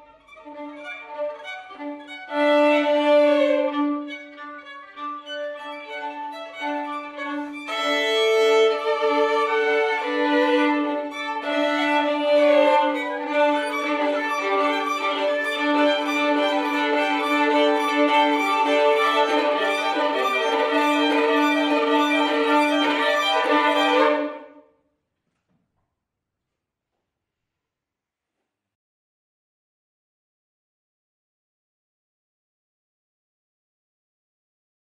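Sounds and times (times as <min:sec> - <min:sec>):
violins playing sustained notes: 0:00.0 - 0:24.6.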